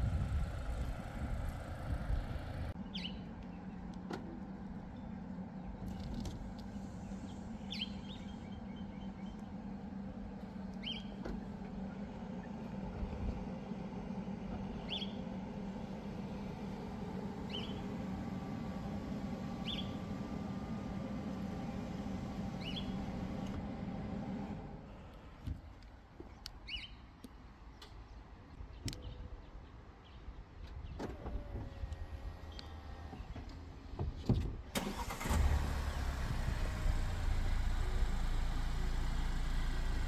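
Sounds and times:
steady low hum: 0.0s - 25.5s
bird chirping: 2.8s - 3.8s, 7.3s - 9.6s, 10.8s - 11.2s, 14.7s - 15.2s, 17.5s - 17.9s, 19.6s - 20.0s, 22.6s - 23.0s, 26.3s - 27.1s.

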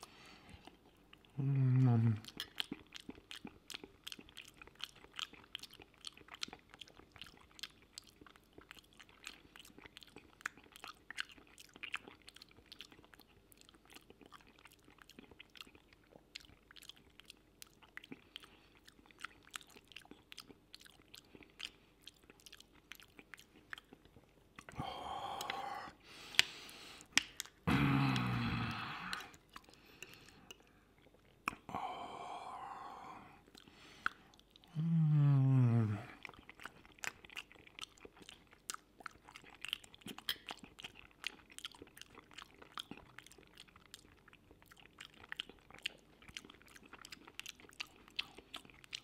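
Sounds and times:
wet chewing sounds: 0.0s - 32.0s, 32.6s - 49.0s
small sharp mouth clicks: 24.6s - 30.6s, 31.4s - 31.7s, 40.1s - 40.6s.

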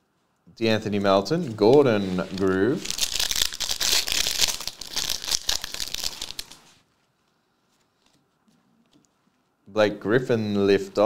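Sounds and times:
plastic wrapper crinkling and tearing: 1.4s - 6.8s.

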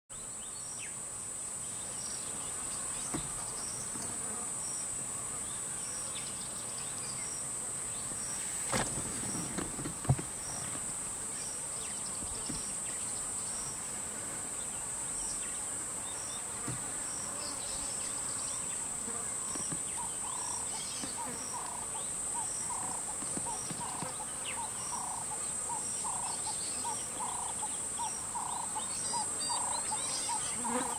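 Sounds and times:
high-pitched insect chorus drone: 19.4s - 30.9s.

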